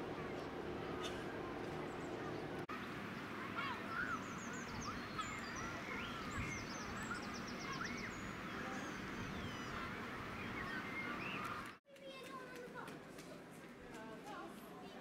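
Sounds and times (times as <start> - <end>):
birds calling: 0.0 - 11.8
outdoor background noise: 0.0 - 15.0.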